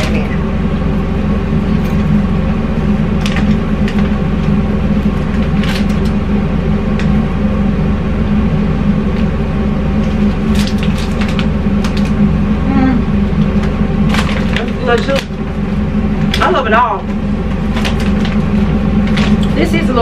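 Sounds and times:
loud droning hum: 0.0s - 20.0s
popcorn bag crackling: 10.1s - 12.3s, 13.5s - 19.7s.

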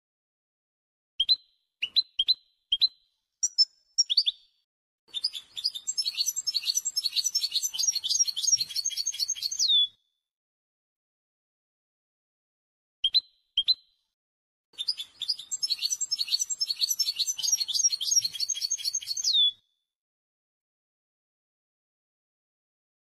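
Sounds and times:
goldfinch singing: 5.1s - 9.9s, 14.8s - 19.6s.

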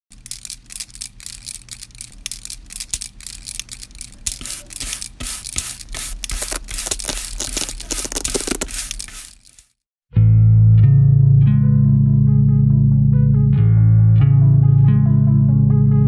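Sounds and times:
crackling and scratching: 0.1s - 9.8s.

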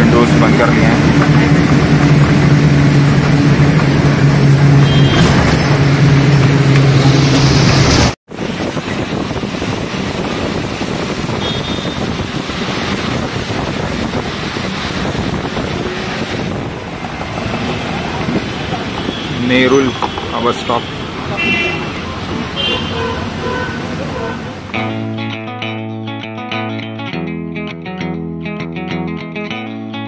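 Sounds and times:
tyres on wet road: 0.0s - 24.8s
bus engine droning: 0.0s - 24.9s
rain: 7.4s - 16.4s.

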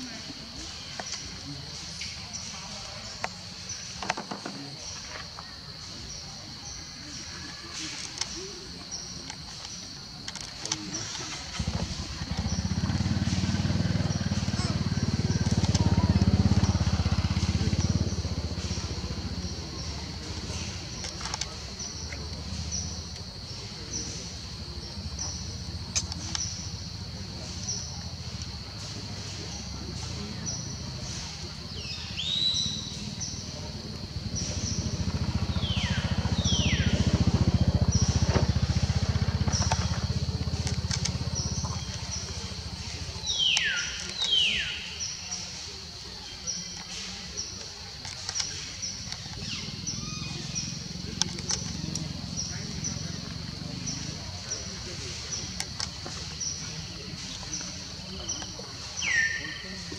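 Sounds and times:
small engine passing by: 10.6s - 45.1s, 48.3s - 59.9s.

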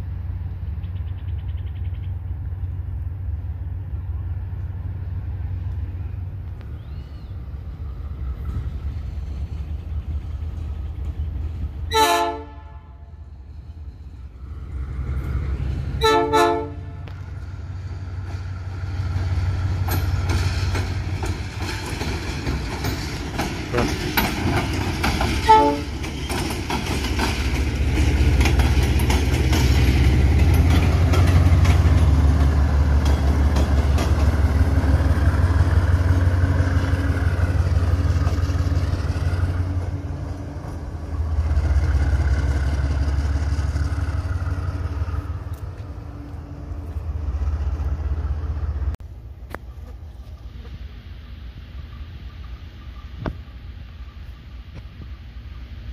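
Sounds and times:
diesel engines rumbling: 0.0s - 55.9s
locomotive horn blast: 11.9s - 13.3s, 15.9s - 17.2s, 25.4s - 26.0s
wheels clicking over rail joints: 17.0s - 50.8s.

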